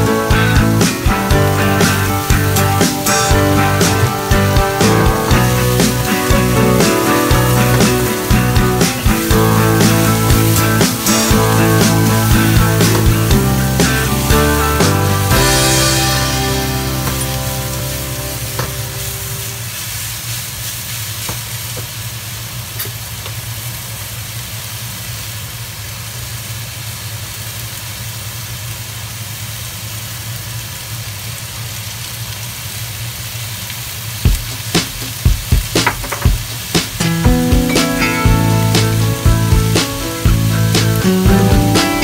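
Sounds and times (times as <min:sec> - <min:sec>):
vegetables sizzling in wok: 0:00.0 - 0:42.0
sharp knocks: 0:34.3 - 0:37.1.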